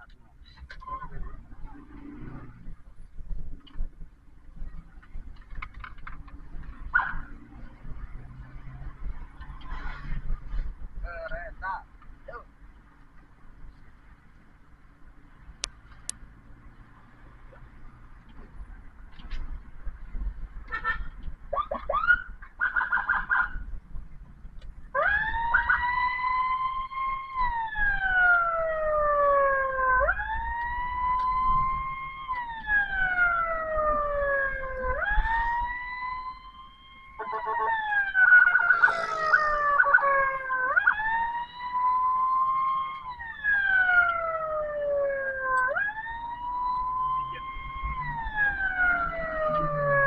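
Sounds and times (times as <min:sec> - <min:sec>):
ambulance siren wailing: 0:21.5 - 0:23.6, 0:24.9 - 0:50.0
second falling siren tone: 0:25.0 - 0:50.0
short rapid siren blasts: 0:25.0 - 0:50.0.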